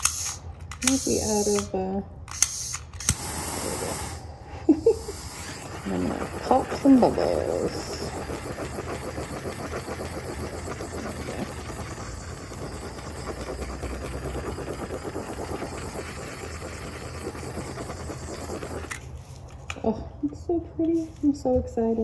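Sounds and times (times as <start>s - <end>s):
torch flame hissing: 0.0s - 1.7s, 2.4s - 19.5s.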